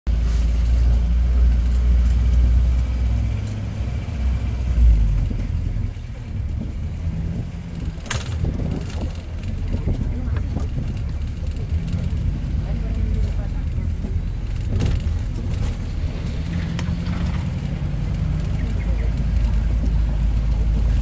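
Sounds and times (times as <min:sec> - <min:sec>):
vehicle engine and road rumble: 0:00.1 - 0:21.0.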